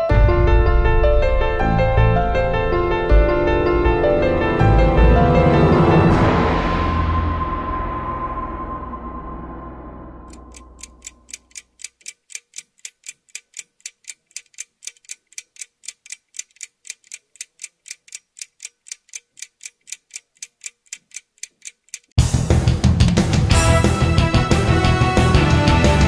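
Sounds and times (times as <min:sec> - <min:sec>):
loud music: 0:00.0 - 0:08.2, 0:22.2 - 0:26.0
music sting: 0:00.0 - 0:10.3
clock-like ticking: 0:10.3 - 0:22.3.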